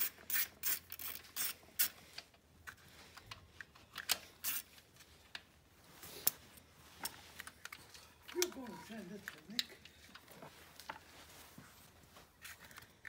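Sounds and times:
socket ratchet clicking: 0:00.0 - 0:02.0.

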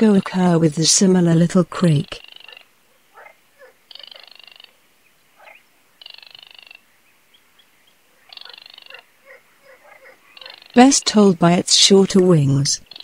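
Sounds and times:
dry rattling animal calls: 0:01.8 - 0:06.9, 0:08.0 - 0:11.2.

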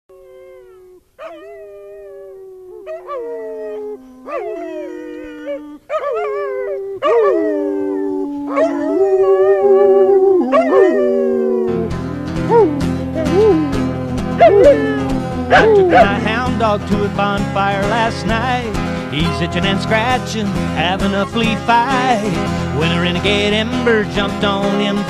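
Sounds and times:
dogs howling: 0:00.1 - 0:16.5
music: 0:10.6 - 0:25.0.

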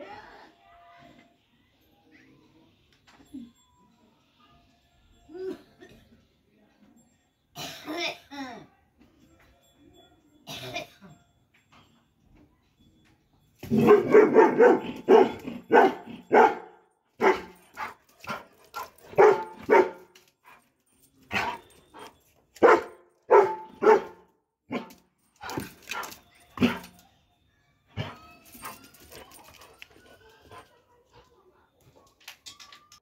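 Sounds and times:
dog barking: 0:13.7 - 0:18.5, 0:19.1 - 0:20.1, 0:21.3 - 0:21.6, 0:22.6 - 0:25.0.

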